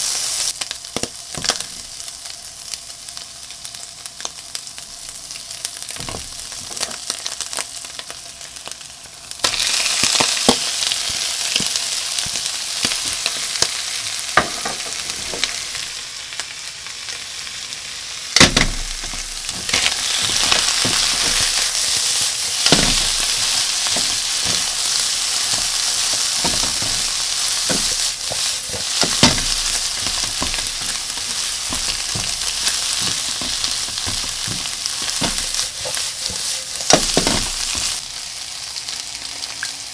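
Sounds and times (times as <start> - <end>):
fish and onion sizzling in oil: 0.0 - 39.9
spatula knocking and scraping pan: 18.4 - 38.0.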